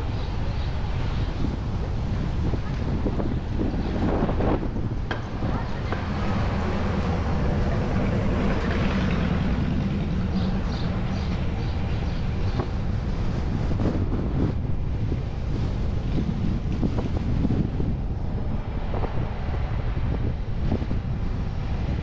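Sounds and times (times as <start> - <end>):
car road noise: 0.0 - 22.0
wind rumbling on microphone: 0.0 - 22.0.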